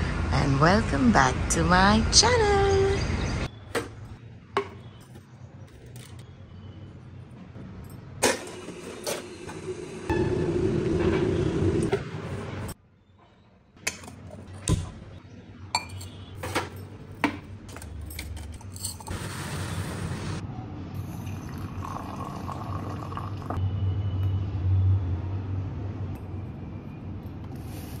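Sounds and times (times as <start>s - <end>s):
steel vessels clinking: 17.7s - 19.2s.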